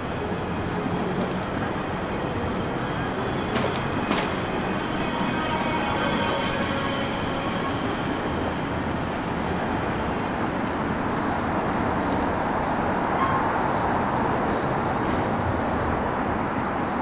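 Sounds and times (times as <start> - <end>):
train wheels on rails: 0.0 - 16.4.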